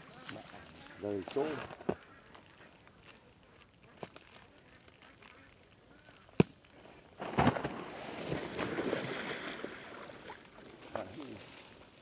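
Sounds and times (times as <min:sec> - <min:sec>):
water splashing and sloshing: 0:07.2 - 0:11.5.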